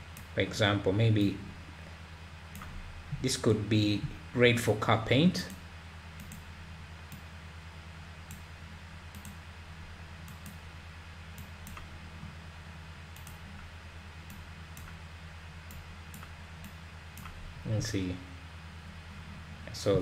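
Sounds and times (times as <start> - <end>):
low electrical hum: 0.0 - 20.0
mouse clicking: 6.2 - 6.4, 9.1 - 9.4, 10.3 - 10.6, 13.2 - 13.4, 15.7 - 17.4.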